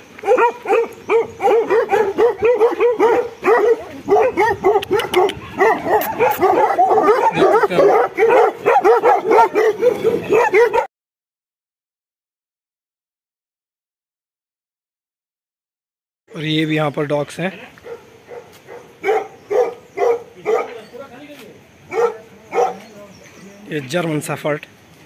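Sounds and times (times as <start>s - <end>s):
dogs and puppies barking: 0.0s - 10.9s, 17.8s - 21.0s, 21.8s - 23.0s.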